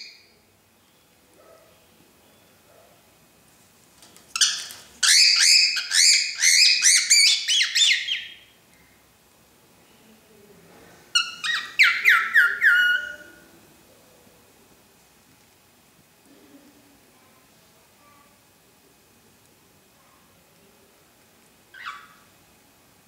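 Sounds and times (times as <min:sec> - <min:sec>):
cockatiel calling: 0:04.4 - 0:08.5, 0:11.2 - 0:13.4, 0:21.7 - 0:22.3.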